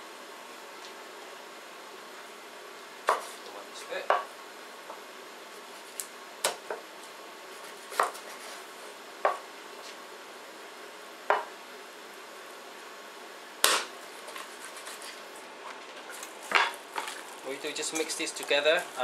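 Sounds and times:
cleaver chopping on wooden board: 3.1s - 3.3s, 7.9s - 8.2s, 13.6s - 13.9s.

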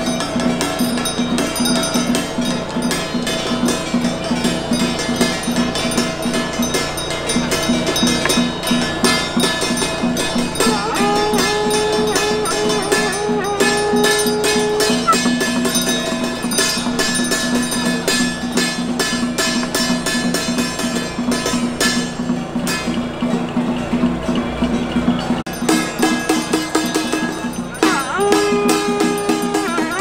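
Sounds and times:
fast drum and gong beat: 0.0s - 30.0s
long wavering held note: 10.5s - 16.1s.

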